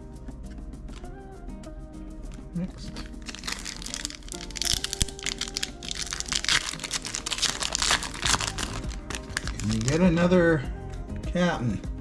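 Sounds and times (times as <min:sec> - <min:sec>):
background music: 0:00.0 - 0:12.0
foil wrapper crinkling: 0:02.8 - 0:10.1.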